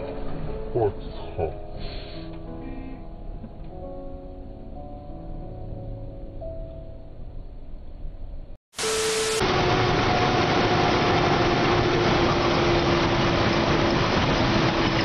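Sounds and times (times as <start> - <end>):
vehicle engine and road noise: 8.1 - 15.0
whine dropping in pitch: 8.8 - 15.0.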